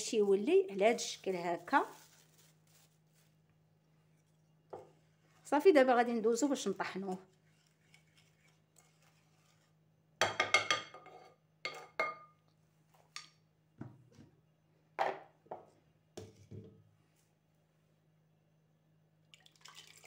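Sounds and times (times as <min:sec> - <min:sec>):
glass clinking and knocking: 0:10.2 - 0:11.1, 0:11.7 - 0:12.3.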